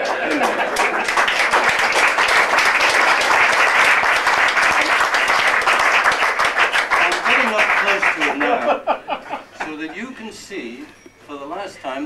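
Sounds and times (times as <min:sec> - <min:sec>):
crowd applauding: 0:00.0 - 0:09.4.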